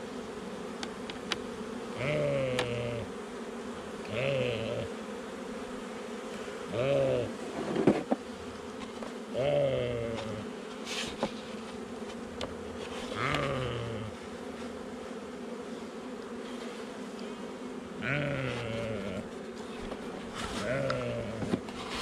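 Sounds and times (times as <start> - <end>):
honeybees buzzing: 0.0 - 22.0
sheep bleating: 2.0 - 3.1, 4.0 - 4.9, 13.2 - 14.2, 18.0 - 19.3, 20.6 - 21.4.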